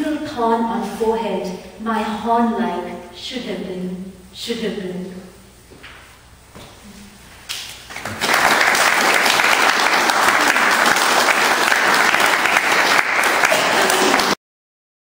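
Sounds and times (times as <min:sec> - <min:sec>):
audience applauding: 0:07.8 - 0:14.4.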